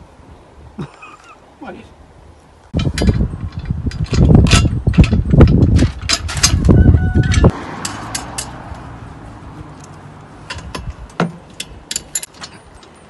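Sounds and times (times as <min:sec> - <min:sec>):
metal parts clicking and clattering: 0:02.8 - 0:08.6, 0:09.8 - 0:13.0.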